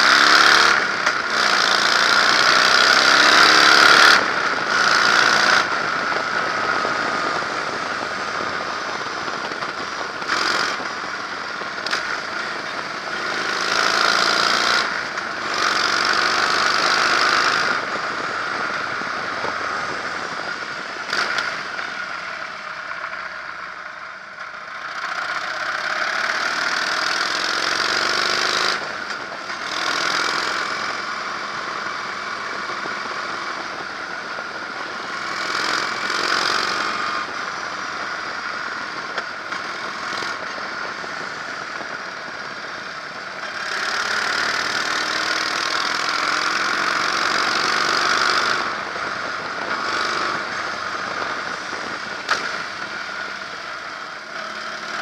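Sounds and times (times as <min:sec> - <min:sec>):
motorcycle engine running: 0:00.0 - 0:55.0
wind rushing over microphone: 0:47.0 - 0:53.9.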